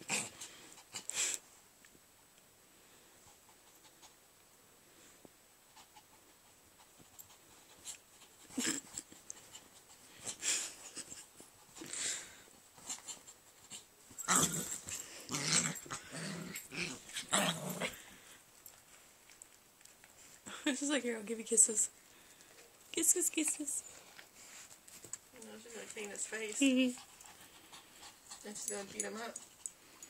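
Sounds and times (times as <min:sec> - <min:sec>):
dogs growling: 0:14.2 - 0:18.3.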